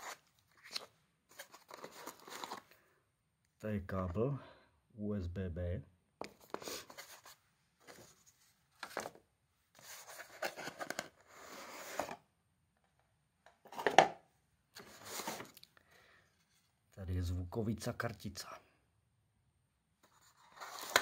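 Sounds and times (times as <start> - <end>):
cardboard inserts sliding and scraping: 0.0 - 2.7, 9.8 - 12.2, 14.8 - 15.6, 20.1 - 21.0
packaging rustling: 0.0 - 2.8, 20.1 - 21.0.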